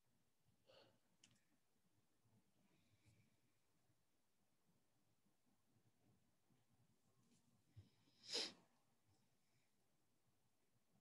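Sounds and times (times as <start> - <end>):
faint clicks: 1.2 - 1.5.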